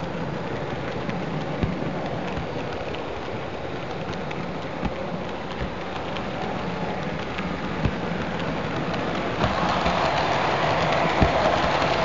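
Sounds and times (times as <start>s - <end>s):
model train rolling on track: 0.0s - 12.0s.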